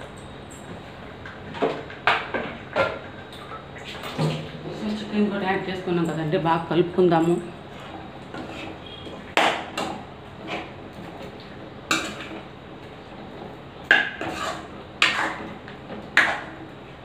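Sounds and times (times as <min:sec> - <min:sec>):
metal spoon scraping metal pan: 0:14.1 - 0:15.4.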